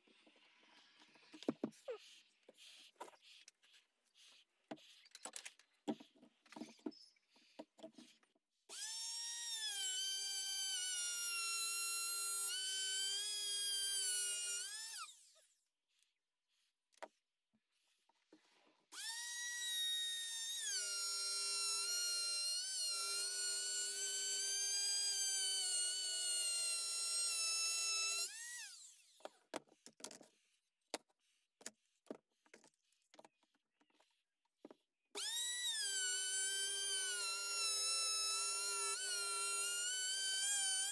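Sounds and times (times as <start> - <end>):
router motor whine: 8.7 - 15.4, 19.0 - 29.2, 35.2 - 40.9.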